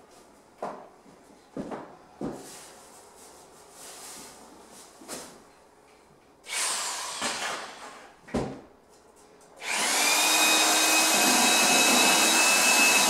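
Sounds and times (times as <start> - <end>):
drill mixer whining: 6.5 - 7.5, 9.6 - 13.0.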